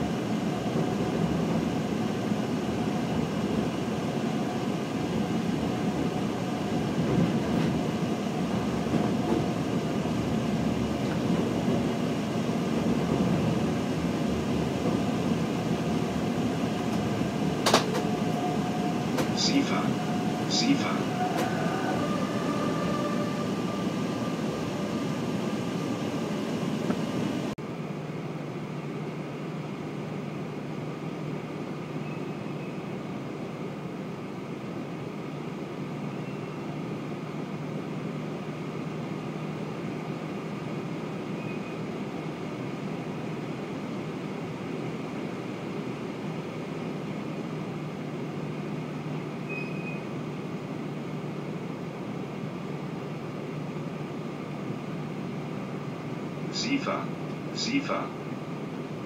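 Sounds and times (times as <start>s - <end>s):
train cab rumble: 0.0s - 27.6s.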